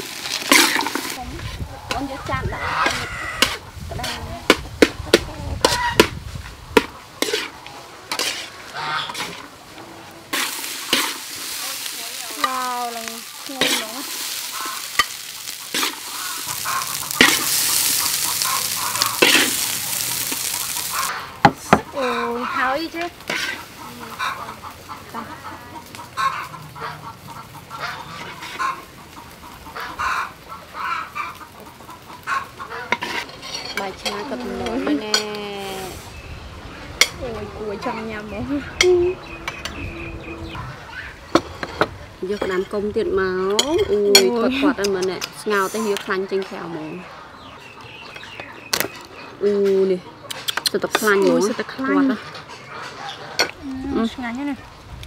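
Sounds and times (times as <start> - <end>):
chickens clucking: 0.5 - 55.0
metal spatula scraping a wok: 6.8 - 21.2, 22.3 - 23.8, 28.0 - 28.9, 32.8 - 36.0, 41.3 - 42.8, 43.5 - 46.2.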